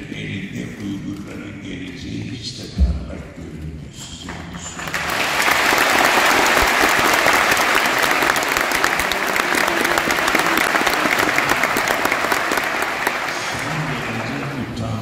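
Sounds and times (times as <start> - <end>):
audience applauding: 4.7 - 15.0.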